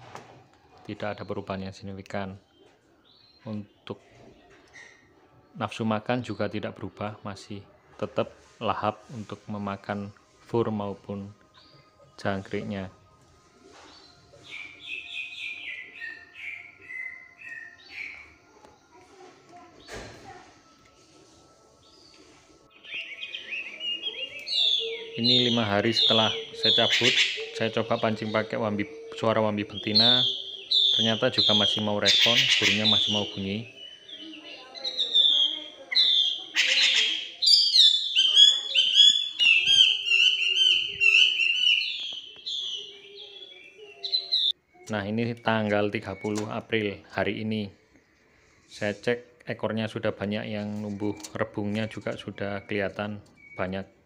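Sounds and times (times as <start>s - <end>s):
recorded bird call: 13.7s - 19.1s, 21.8s - 54.0s
bird singing whistled notes: 13.9s - 18.4s, 21.8s - 47.1s, 50.6s - 54.0s.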